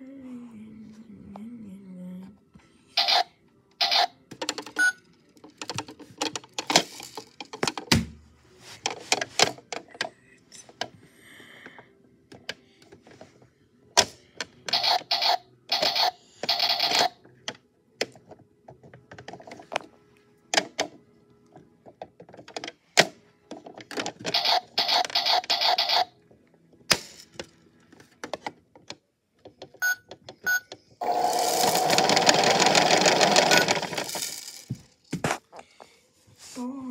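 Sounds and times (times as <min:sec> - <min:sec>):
rattling whir: 0:31.0 - 0:34.5
beads rattling: 0:31.2 - 0:34.9.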